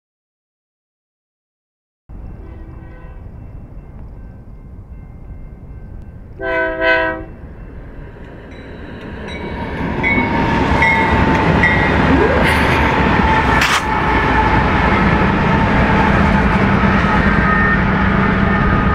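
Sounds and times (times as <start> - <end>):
train rumble: 2.1 - 18.9
train horn blasts: 2.2 - 3.4, 6.4 - 7.4, 13.2 - 18.9.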